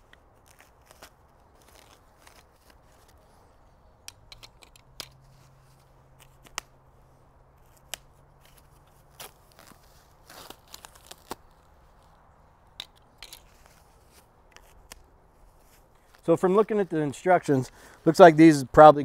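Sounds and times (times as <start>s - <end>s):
foam wrap rustling: 0.0s - 3.8s, 7.6s - 12.3s.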